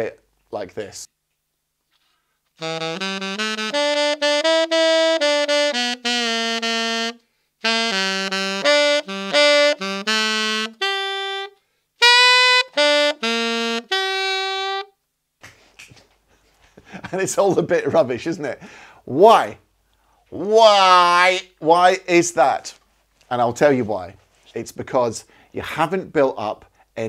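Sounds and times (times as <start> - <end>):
tenor saxophone playing blues: 2.6 - 15.0.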